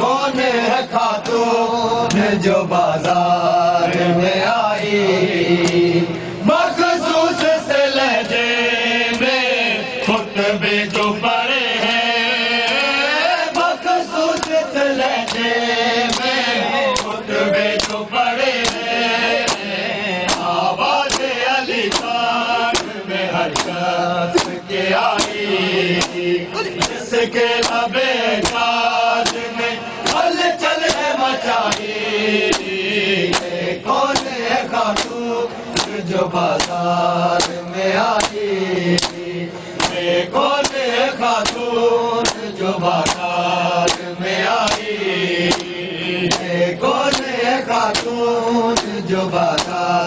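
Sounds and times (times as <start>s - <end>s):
men chanting in unison: 0.0s - 50.0s
hand slaps on bare chests: 14.3s - 14.6s, 15.2s - 15.5s, 16.1s - 17.2s, 17.8s - 18.0s, 18.6s - 25.4s, 26.0s - 26.2s, 26.8s - 27.0s, 27.6s - 31.9s, 32.5s - 35.2s, 35.8s - 36.8s, 37.4s - 37.6s, 38.2s - 39.2s, 39.8s - 46.5s, 47.1s - 48.2s, 48.8s - 49.8s.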